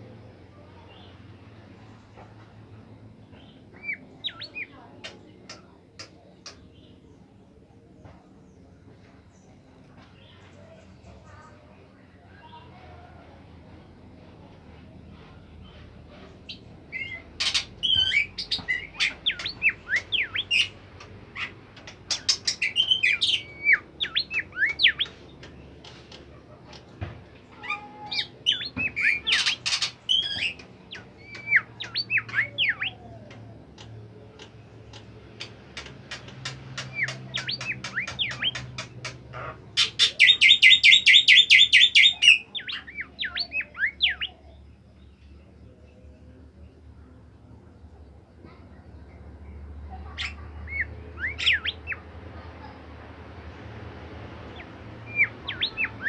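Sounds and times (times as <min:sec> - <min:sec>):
bird singing chirps and whistles: 0:17.8 - 0:20.7, 0:22.3 - 0:25.1, 0:40.1 - 0:44.4, 0:55.1 - 0:56.0
fast bird trill: 0:39.8 - 0:44.2.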